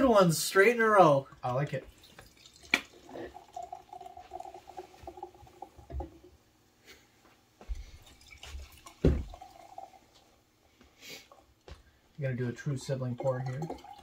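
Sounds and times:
liquid gurgling into a glass: 0:01.9 - 0:06.3, 0:08.0 - 0:10.0, 0:12.8 - 0:14.0.

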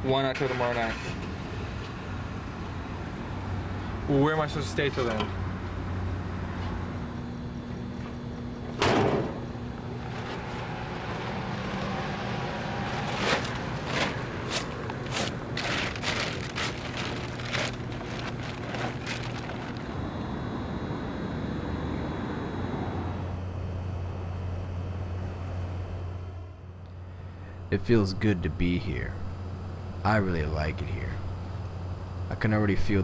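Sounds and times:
steady low hum: 0:00.0 - 0:33.0
thump: 0:08.8 - 0:09.4
plastic tarp crinkling: 0:12.8 - 0:19.9.

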